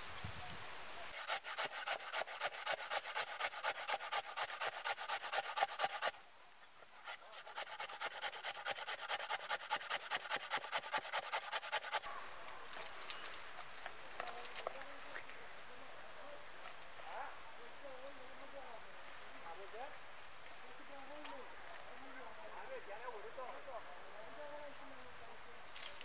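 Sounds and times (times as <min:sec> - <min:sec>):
hand grater rasping: 0:01.2 - 0:06.1, 0:07.1 - 0:12.0.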